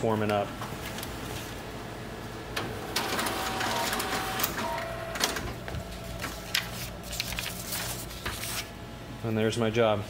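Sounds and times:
copier motor hum and whir: 0.0 - 10.0
paper feed clicks: 2.5 - 8.7.

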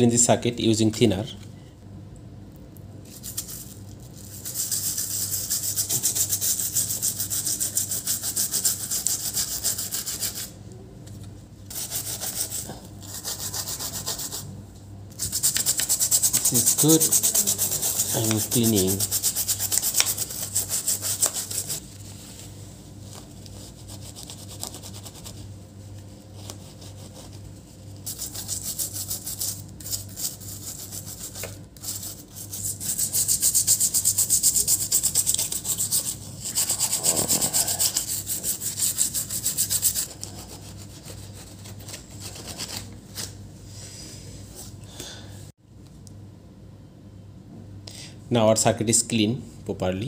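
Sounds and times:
steady low hum: 0.0 - 50.0
brush scrubbing circuit board: 4.3 - 10.5, 15.2 - 21.8, 28.0 - 42.6.

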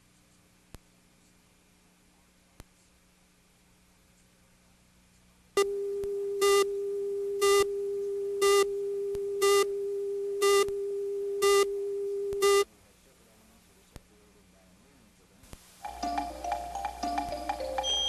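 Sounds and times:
steady test tone: 15.8 - 18.0
bright beeps: 17.8 - 18.0.

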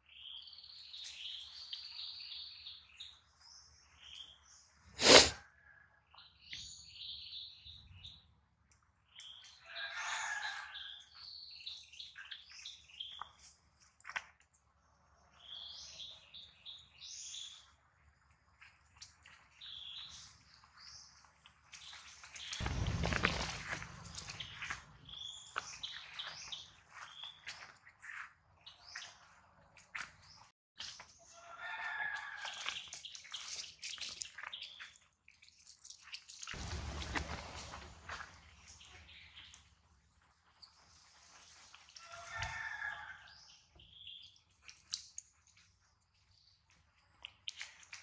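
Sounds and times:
low rumble: 22.6 - 25.2, 36.6 - 38.8.

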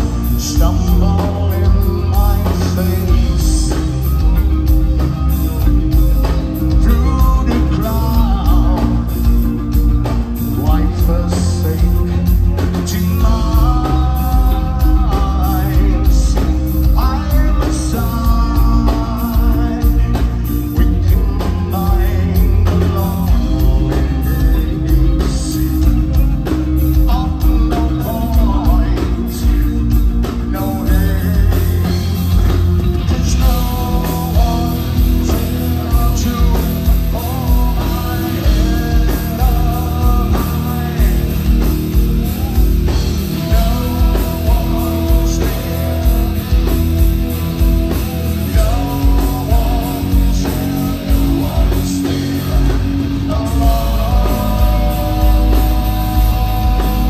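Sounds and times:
heavy metal band playing: 0.0 - 57.0
person singing: 0.0 - 57.0.

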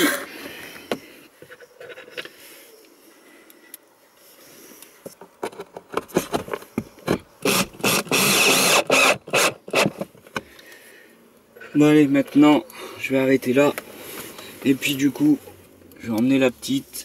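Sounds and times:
drill driving screws into wood: 7.4 - 10.1.

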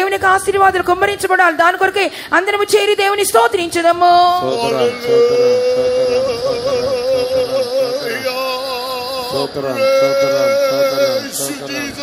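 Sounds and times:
congregation praising aloud: 4.0 - 12.0.

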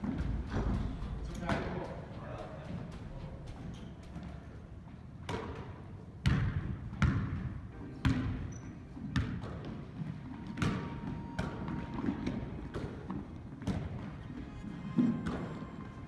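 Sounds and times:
basketball bouncing on hardwood floor: 5.3 - 14.2.

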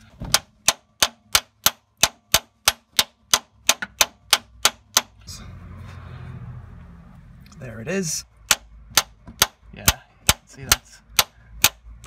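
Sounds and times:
hammer striking metal: 0.3 - 5.2, 8.4 - 11.9.

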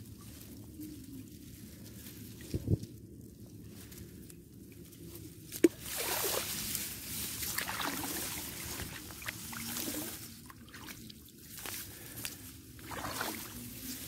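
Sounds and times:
muddy water sloshing and splashing: 5.5 - 14.0.

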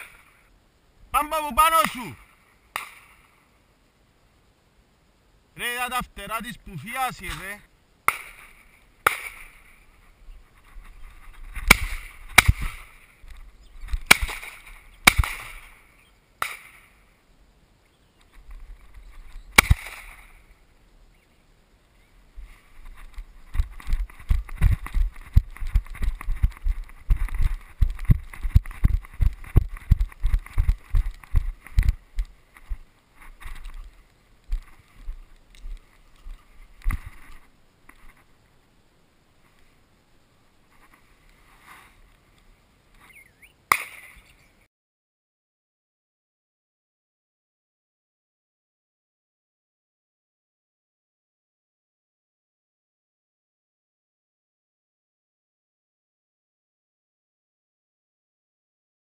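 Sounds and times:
footsteps through long grass: 8.2 - 16.0, 18.2 - 20.6, 22.3 - 38.4.

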